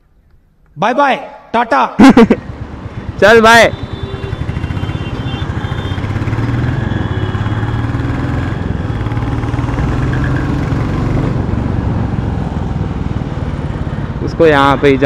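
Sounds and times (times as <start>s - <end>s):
motorcycle engine running: 2.3s - 15.0s.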